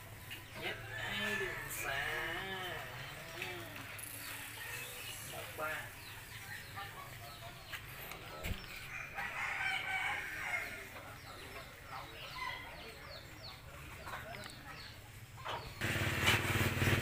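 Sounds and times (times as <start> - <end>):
small birds chirping: 0.0 - 15.8
rooster crowing: 8.9 - 10.9.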